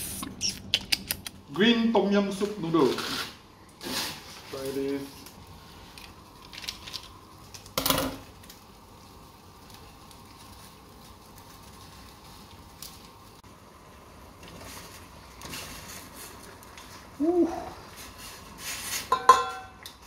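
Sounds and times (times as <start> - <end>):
gas burner hissing: 0.0 - 20.0
saucepan simmering: 3.4 - 20.0
metal cookware clanking: 19.0 - 19.9.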